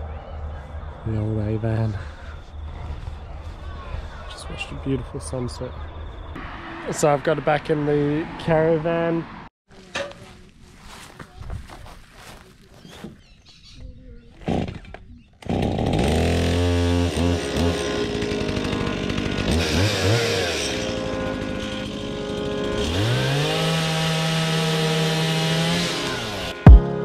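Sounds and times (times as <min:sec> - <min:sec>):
chainsaw starting and revving: 0:14.4 - 0:26.8.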